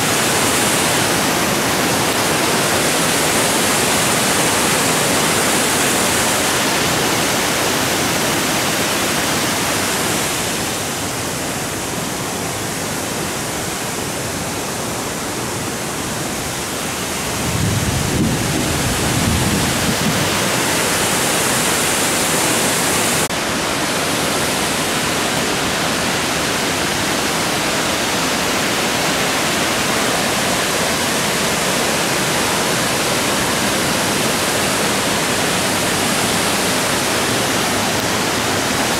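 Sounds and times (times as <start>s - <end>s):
waterfall rushing: 0.0s - 38.9s.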